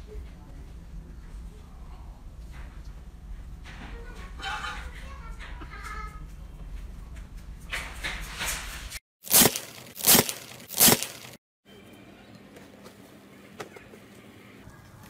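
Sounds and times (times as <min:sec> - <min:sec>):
slime crackling and tearing: 0:09.3 - 0:11.4.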